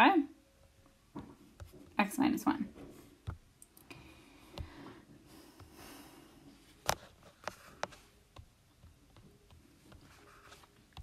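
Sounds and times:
soft breath: 3.8 - 6.8.

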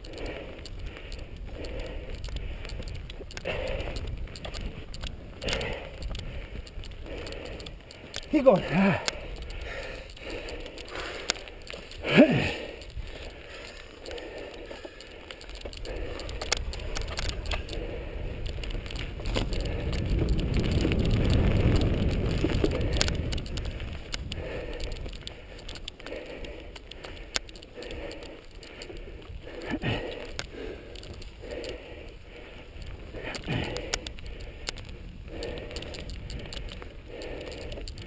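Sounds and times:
bike rattling and clicking: 0.0 - 38.0
low rumble: 9.0 - 27.0.

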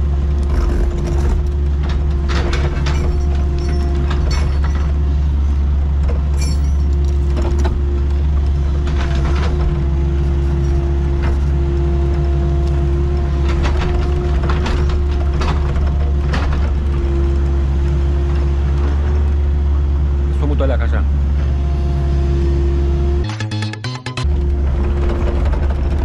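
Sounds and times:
excavator diesel engine running: 0.0 - 26.0
machine knocks and clatter: 0.4 - 5.0, 13.3 - 17.2, 24.2 - 26.0.

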